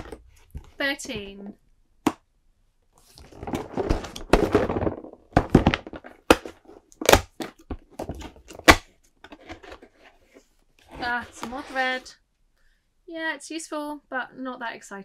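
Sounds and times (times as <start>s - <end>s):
cardboard box rubbing and scraping: 9.6s - 12.1s.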